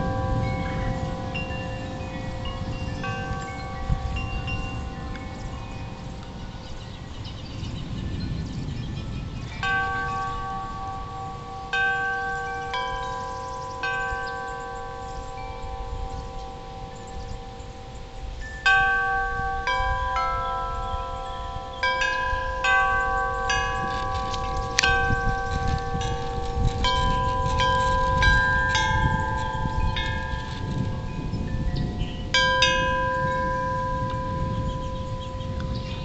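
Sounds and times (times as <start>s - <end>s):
metal wind chimes ringing: 0.0s - 36.0s
wind rumble: 0.0s - 36.0s.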